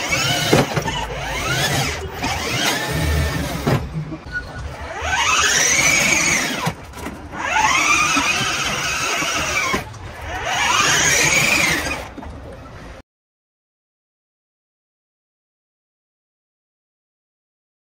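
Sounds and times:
electric motors whining: 0:00.0 - 0:03.8, 0:04.5 - 0:12.2.

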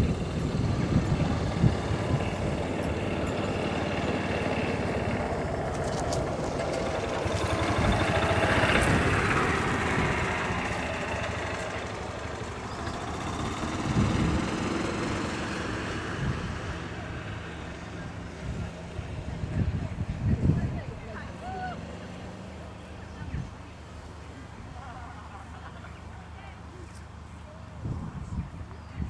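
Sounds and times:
wind buffeting microphone: 0:00.0 - 0:21.4, 0:27.8 - 0:29.0.

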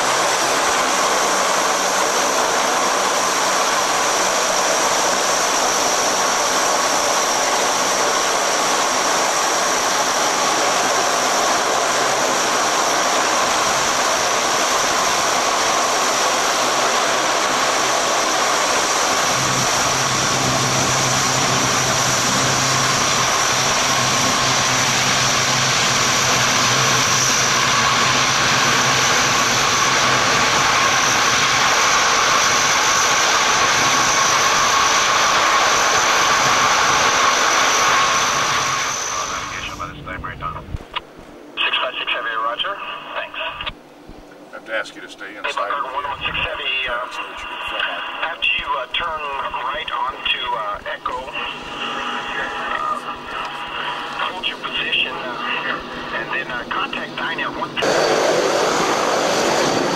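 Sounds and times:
turboprop engines whining: 0:00.0 - 0:59.9.

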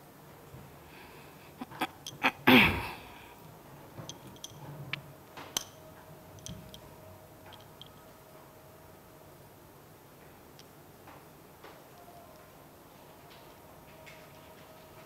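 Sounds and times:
woman sneezing: 0:01.6 - 0:03.2.

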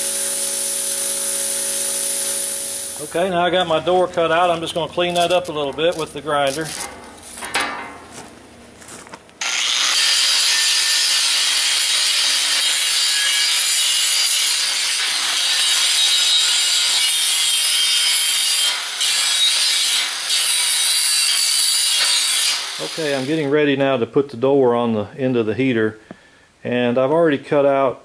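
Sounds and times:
angle grinder grinding steel: 0:00.0 - 0:06.8, 0:09.4 - 0:23.3.

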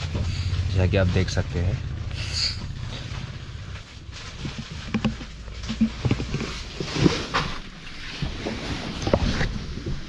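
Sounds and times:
bus interior rumble: 0:00.0 - 0:10.0
phone rustling against clothing: 0:02.6 - 0:10.0.

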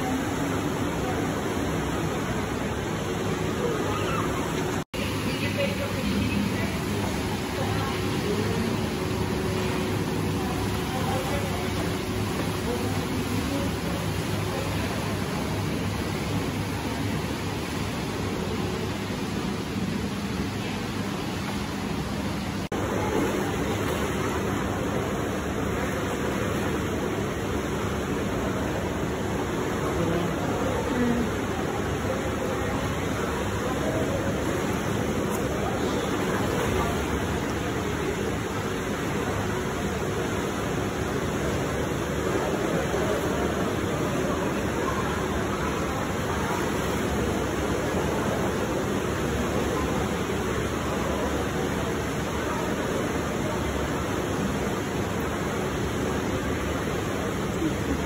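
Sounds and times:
splashing churning water: 0:00.0 - 0:58.0.

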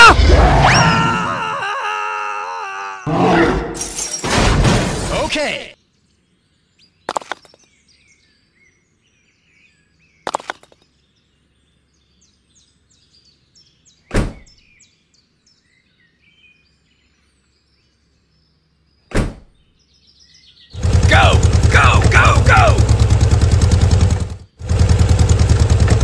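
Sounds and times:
faint birdsong: 0:05.2 - 0:26.0.

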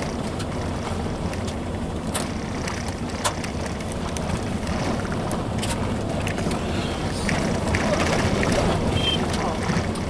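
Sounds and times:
car driving on gravel: 0:00.0 - 0:10.0
wind noise: 0:02.3 - 0:10.0.

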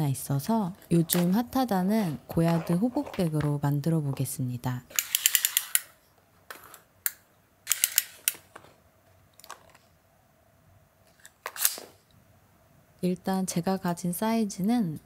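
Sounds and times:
tape measure clicking and rattling: 0:04.9 - 0:05.9, 0:07.7 - 0:08.5.

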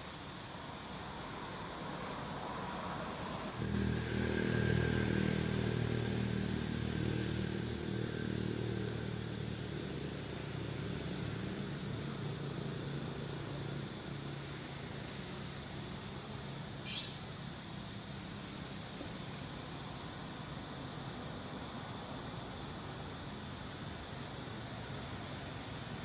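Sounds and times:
vehicle engine running: 0:03.6 - 0:14.0.

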